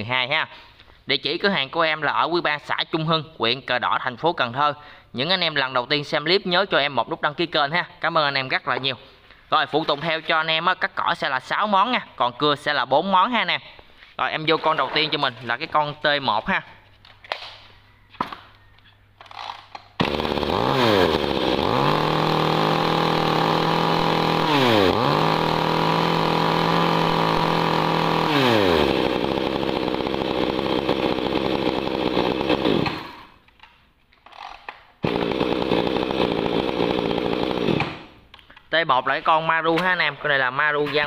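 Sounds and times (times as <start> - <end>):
chainsaw engine revving: 19.3 - 33.4, 35.0 - 38.2.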